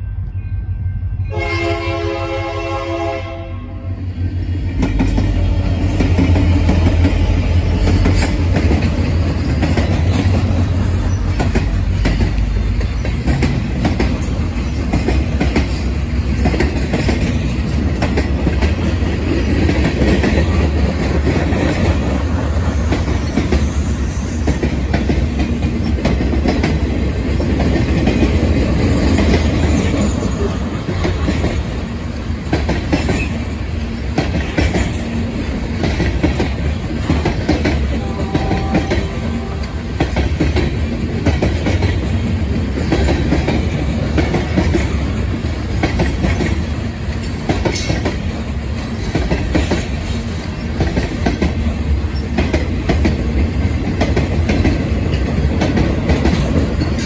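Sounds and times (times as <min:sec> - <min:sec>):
freight train rumbling past: 0:00.0 - 0:57.0
locomotive horn chord: 0:01.2 - 0:04.0, 0:38.0 - 0:39.8
train cars clacking over rail joints: 0:04.6 - 0:57.0.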